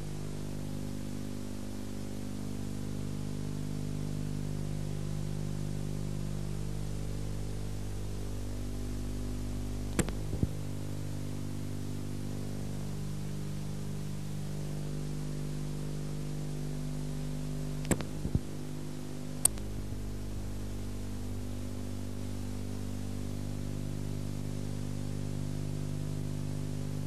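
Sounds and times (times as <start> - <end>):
electrical hum and hiss: 0.0 - 27.0
sharp clicks: 9.9 - 10.6, 17.8 - 18.5, 19.4 - 19.8.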